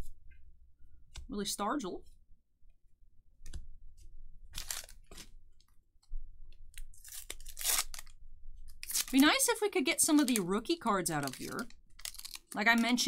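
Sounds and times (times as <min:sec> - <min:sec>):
cards and paper rustling: 0:04.5 - 0:05.4, 0:08.7 - 0:13.0.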